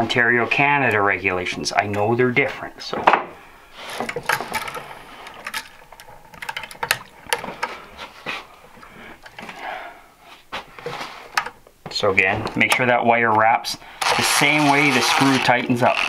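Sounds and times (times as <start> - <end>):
small metal clicks: 4.0 - 7.7.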